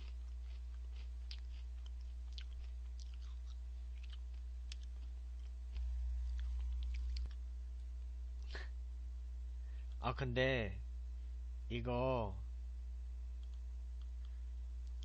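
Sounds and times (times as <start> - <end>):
corn puffs crunching: 0.0 - 7.4
steady low hum: 0.0 - 15.0.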